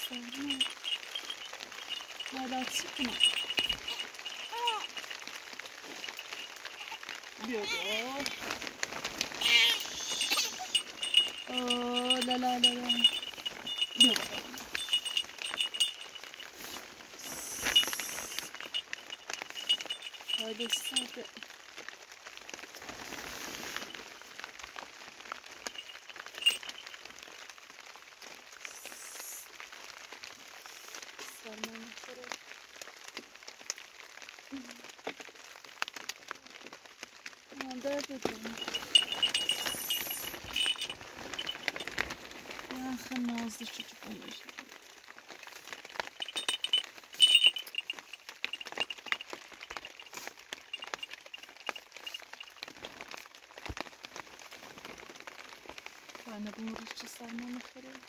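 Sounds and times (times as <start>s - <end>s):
metal jingle: 0.0s - 21.4s, 25.6s - 27.1s, 37.8s - 44.7s, 45.7s - 52.8s
small metal pieces clinking: 0.0s - 21.4s, 25.6s - 27.0s, 37.9s - 44.5s, 45.7s - 52.8s.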